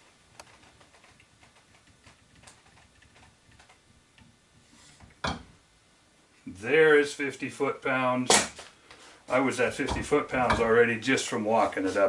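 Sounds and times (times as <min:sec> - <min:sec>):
sharp crack: 0:08.3 - 0:08.8.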